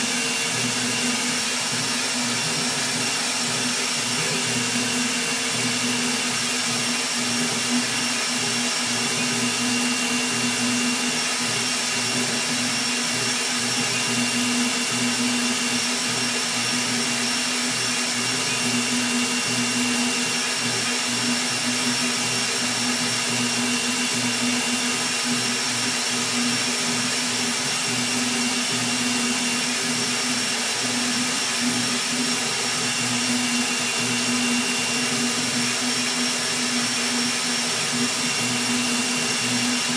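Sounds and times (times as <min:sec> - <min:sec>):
cooling fan whine: 0:00.0 - 0:39.9.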